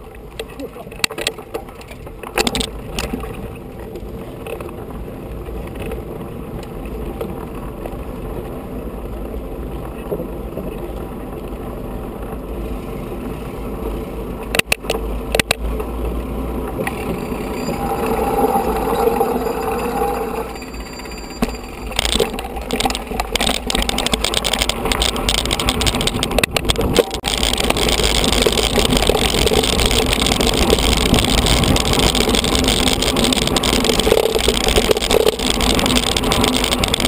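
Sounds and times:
wind rumble on microphone: 0:00.0 - 0:37.0
bike tyres rumbling over boards: 0:21.3 - 0:37.0.

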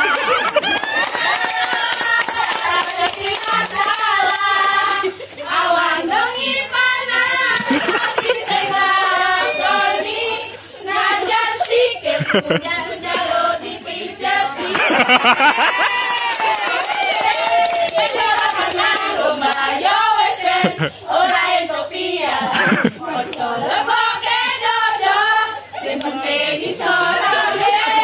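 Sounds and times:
girls chanting in unison: 0:01.8 - 0:12.1, 0:17.9 - 0:28.0.

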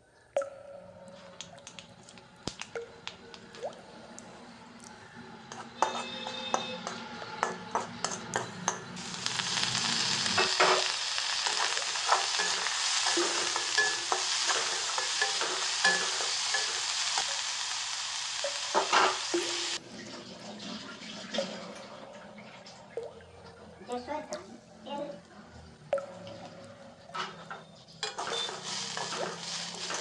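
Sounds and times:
onion sizzling in hot oil: 0:09.0 - 0:19.8, 0:28.1 - 0:30.0
metal spatula scraping pan: 0:27.8 - 0:30.0.

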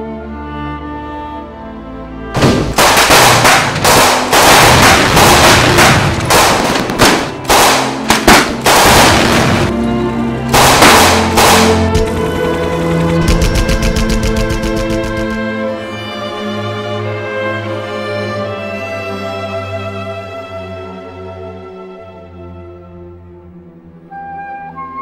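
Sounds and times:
sad string music: 0:00.0 - 0:25.0
rapid gunfire: 0:02.4 - 0:09.7, 0:10.5 - 0:15.4.

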